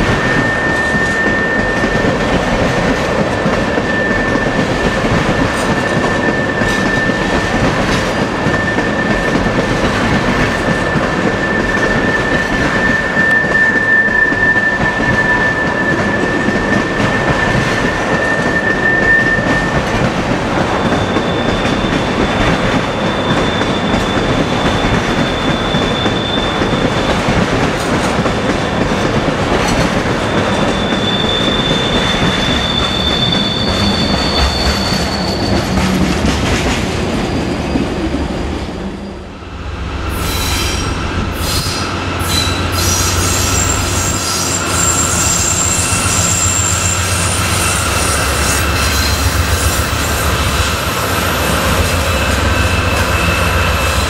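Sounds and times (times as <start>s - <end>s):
high-pitched flange squeal: 0.0s - 2.4s, 3.4s - 7.6s, 8.3s - 20.0s, 30.3s - 36.1s, 37.1s - 54.0s
train wheels rumbling on rails: 0.0s - 54.0s.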